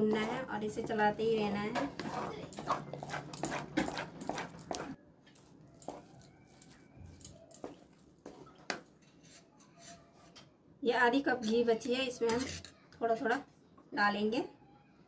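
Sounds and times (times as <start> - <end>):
wooden spatula scraping metal pan: 0.0 - 5.0, 12.2 - 12.7.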